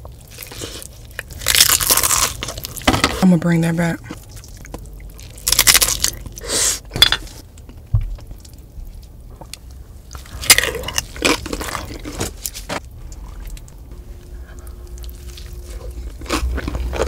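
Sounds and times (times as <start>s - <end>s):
loud crunch of chip bite: 0.4s - 2.8s
wet chewing: 4.1s - 6.4s, 14.5s - 17.0s.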